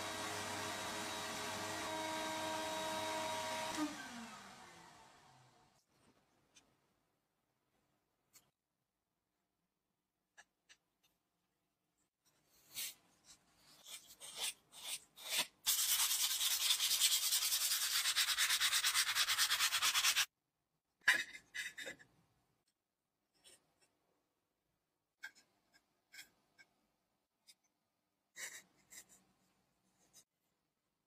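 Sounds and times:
hand sanding metal: 15.7s - 20.3s.

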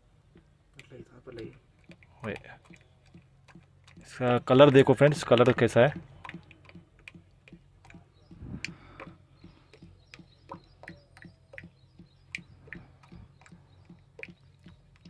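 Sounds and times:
oil glugging into funnel: 0.4s - 15.0s.

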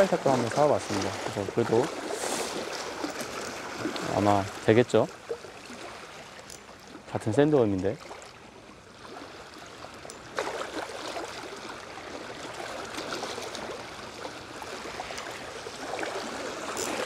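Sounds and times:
seawater washing against rocks: 0.0s - 6.6s, 10.2s - 17.0s.

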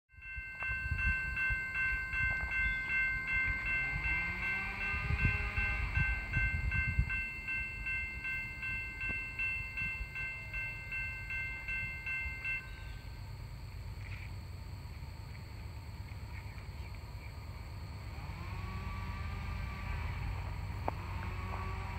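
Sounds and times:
steady high pulsing ringing: 0.1s - 21.9s
train rumble: 0.1s - 21.9s
distant locomotive horn: 2.4s - 7.1s, 18.1s - 21.9s.

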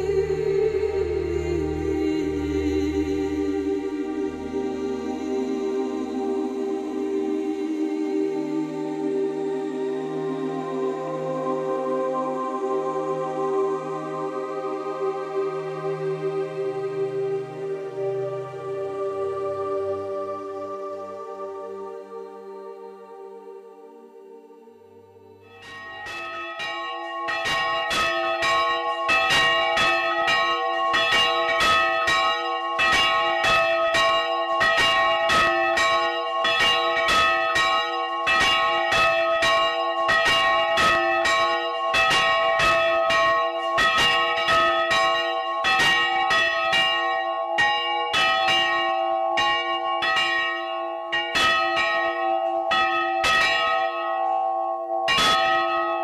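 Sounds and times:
church bells ringing: 25.4s - 56.0s.

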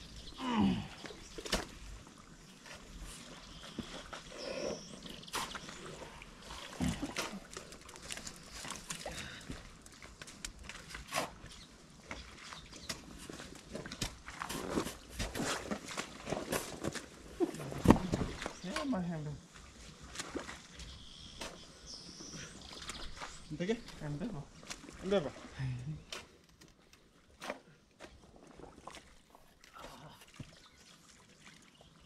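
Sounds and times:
boots squelching in mud: 5.3s - 18.7s.

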